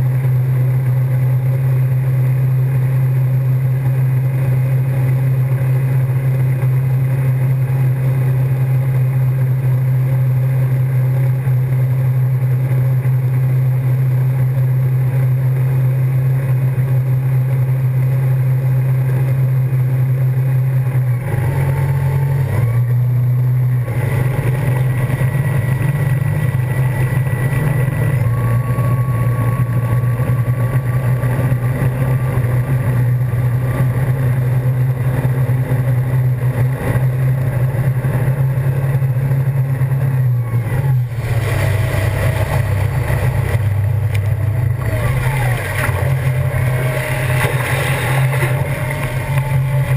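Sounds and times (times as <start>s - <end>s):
boat engine drone: 0.0s - 49.9s
rushing boat wake: 41.0s - 49.9s.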